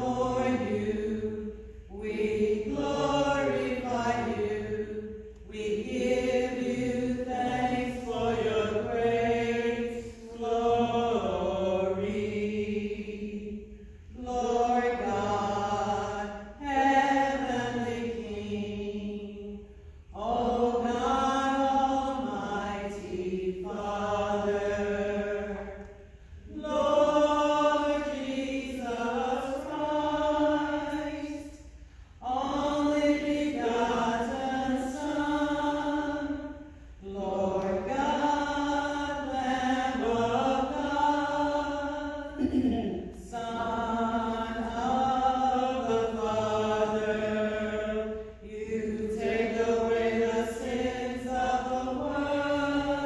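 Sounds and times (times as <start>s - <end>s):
voices singing a chant: 0.0s - 53.0s
singers breathing: 31.6s - 32.2s.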